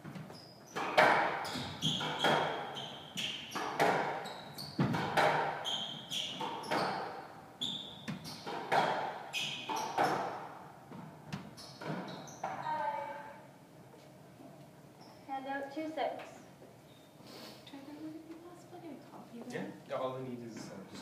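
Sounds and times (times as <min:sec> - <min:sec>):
shoes squeaking on wooden floor: 0:00.0 - 0:13.3, 0:15.0 - 0:15.3
squash ball hits: 0:00.8 - 0:04.2, 0:04.8 - 0:05.6, 0:08.1 - 0:12.6.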